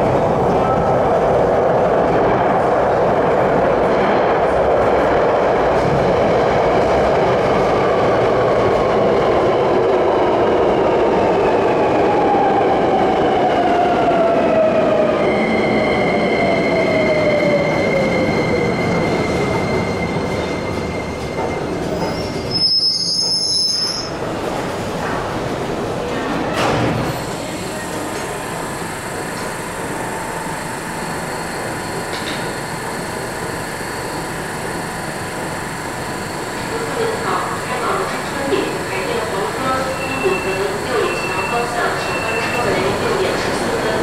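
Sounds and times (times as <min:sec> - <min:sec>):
train wheels rumbling on rails: 0:24.1 - 0:44.0.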